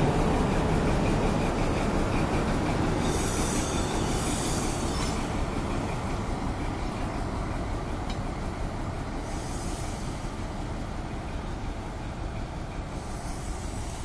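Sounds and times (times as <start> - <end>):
diesel locomotive engine: 0.0 - 14.0
wheels rumbling on rails: 0.0 - 14.0
wheel hiss: 2.5 - 5.7, 9.1 - 10.7, 12.8 - 14.0.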